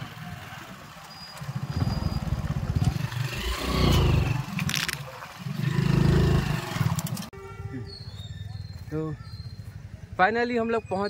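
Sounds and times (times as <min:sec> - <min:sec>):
small motorcycle engine running: 0:00.0 - 0:04.5.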